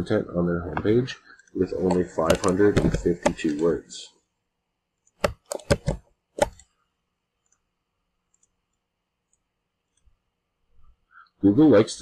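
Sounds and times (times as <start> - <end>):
computer mouse clicks: 5.0 - 6.8, 8.3 - 10.1.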